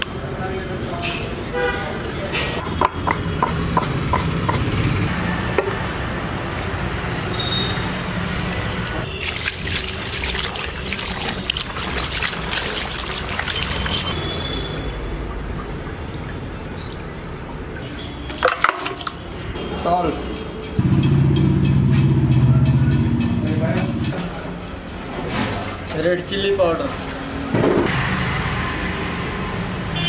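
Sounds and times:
water splashing and trickling: 6.0s - 19.6s, 25.1s - 27.5s.

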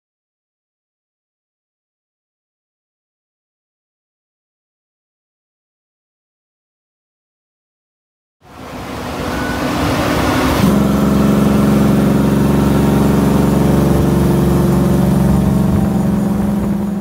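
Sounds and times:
truck diesel engine running: 8.5s - 17.0s.

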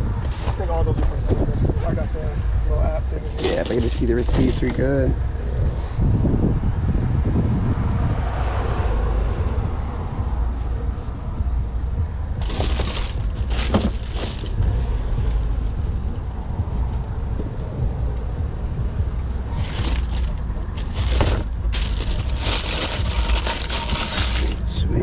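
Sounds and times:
wind rumble on microphone: 0.0s - 25.0s
sneakers rustling and scuffing: 12.4s - 14.6s, 19.6s - 22.4s
tissue paper crinkling: 12.4s - 14.6s, 19.6s - 24.6s.

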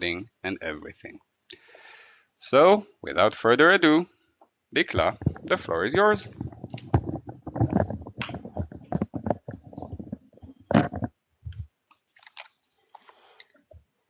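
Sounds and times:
clicks and crackling noise: 4.4s - 13.8s.

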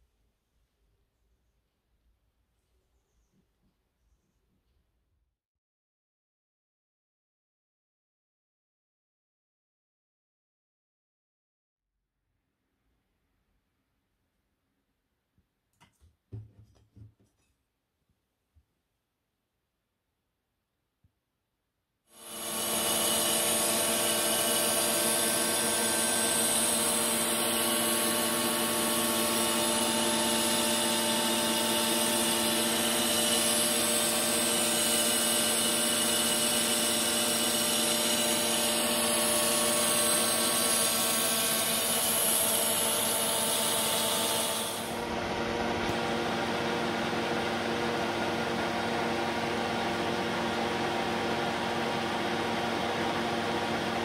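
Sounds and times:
metal lathe humming: 22.2s - 48.7s.

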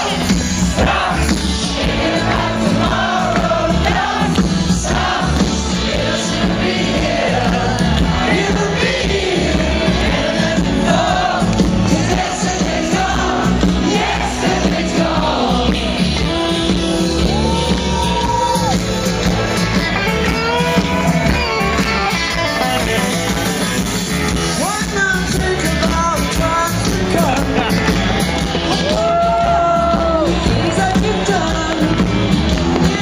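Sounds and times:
lead singer singing: 0.0s - 19.2s, 28.8s - 33.0s
crowd shouting: 0.0s - 25.1s, 26.1s - 33.0s
live rock band playing: 0.0s - 33.0s.

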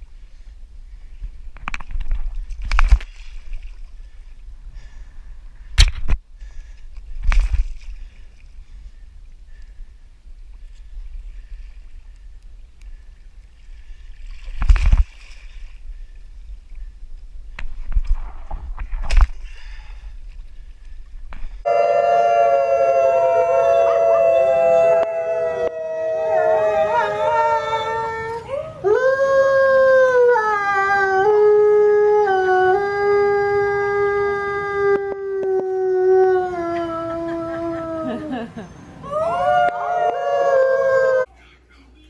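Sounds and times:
kayak paddle splashing: 13.0s - 16.4s
wolves howling: 21.7s - 34.2s, 39.0s - 41.3s.

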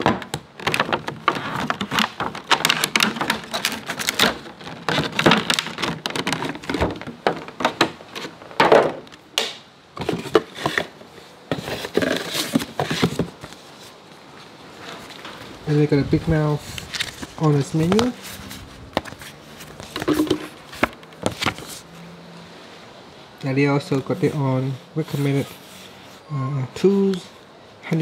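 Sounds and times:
plastic bag crinkling and rustling: 0.0s - 8.6s, 14.7s - 21.9s.

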